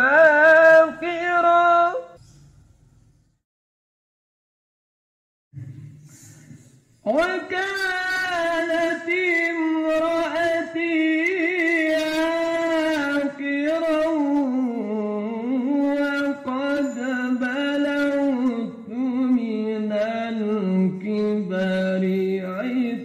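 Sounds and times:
man chanting recitation: 0.0 - 2.2, 7.0 - 23.0.

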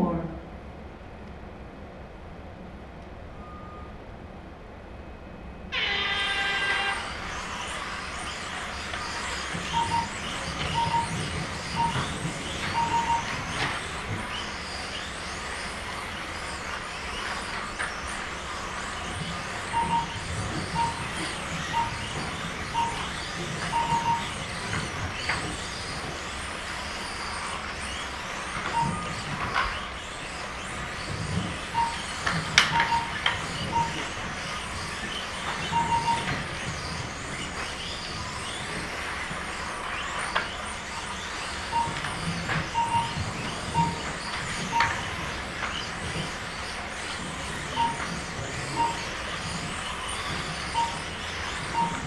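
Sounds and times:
short beeps: 3.4 - 4.0, 9.5 - 13.7, 19.7 - 24.8, 28.6 - 29.4, 31.7 - 34.2, 35.6 - 36.4, 41.7 - 45.2, 47.7 - 52.0
small electric motors whining: 5.8 - 52.0.

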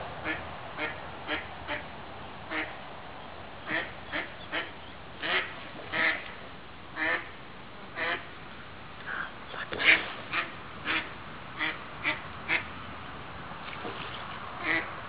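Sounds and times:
duck quacking: 0.2 - 1.8, 2.5 - 2.7, 3.6 - 6.2, 7.0 - 7.3, 8.0 - 8.3, 9.8 - 12.7, 14.6 - 14.9.

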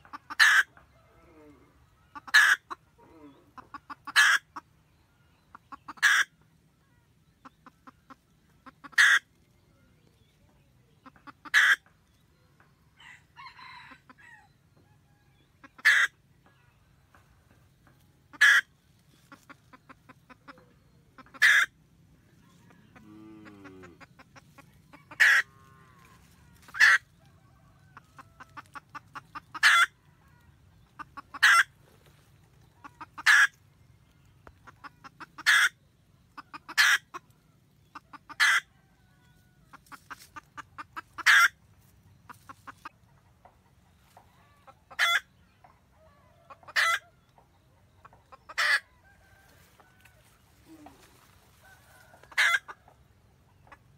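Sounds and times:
hen cackling: 0.0 - 4.7, 5.5 - 6.4, 7.0 - 9.3, 11.0 - 11.9, 15.6 - 16.2, 18.3 - 33.6, 34.5 - 38.9, 39.6 - 41.6, 44.4 - 45.3, 46.0 - 47.2, 48.0 - 53.0.

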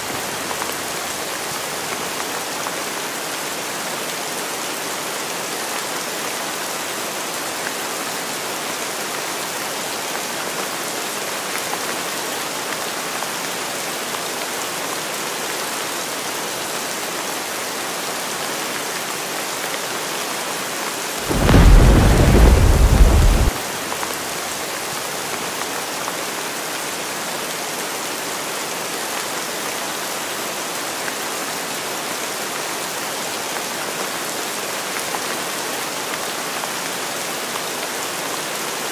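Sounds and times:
deep thunder clap: 21.2 - 23.6
heavy rain hissing: 21.2 - 24.5.

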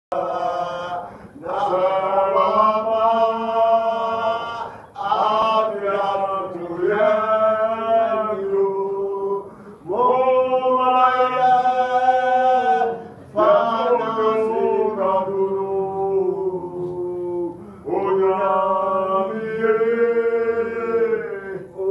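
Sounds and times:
man singing gospel: 0.1 - 21.9.

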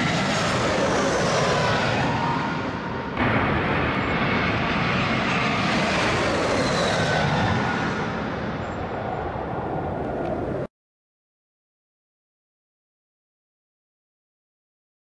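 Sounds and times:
jet engine roar: 0.0 - 10.7
jet engine whine: 0.0 - 10.7.

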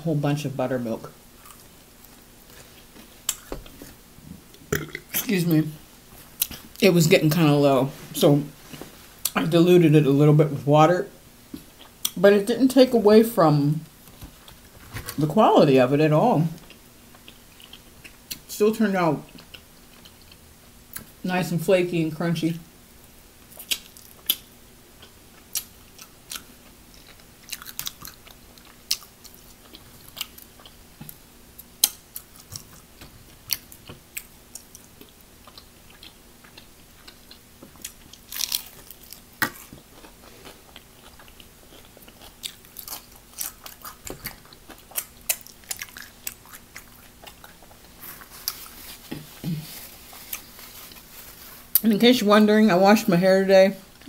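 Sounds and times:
chewing crispy fried chicken: 16.6 - 18.5, 19.2 - 21.2, 23.4 - 51.9.

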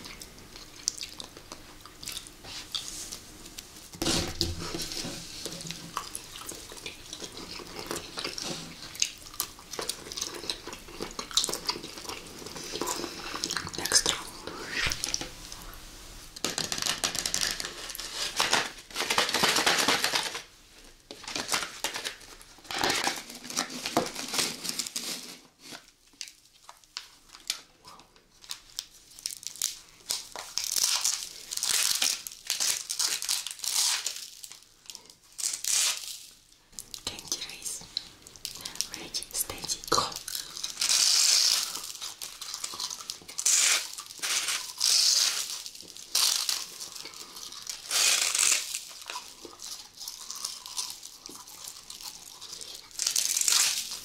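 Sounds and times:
jelly candy being handled: 0.5 - 54.0
packaging crinkling and tearing: 4.0 - 15.6, 16.4 - 20.5, 21.1 - 54.0
potato chips crunching: 5.9 - 15.2, 26.1 - 37.6, 39.9 - 54.0.

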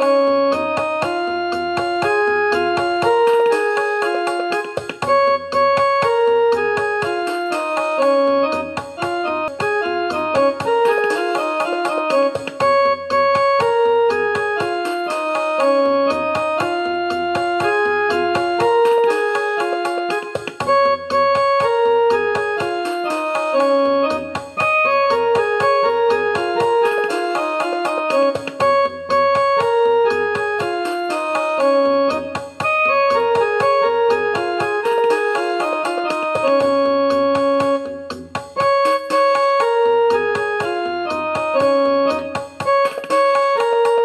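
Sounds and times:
piano melody: 0.0 - 38.0, 38.6 - 44.0.

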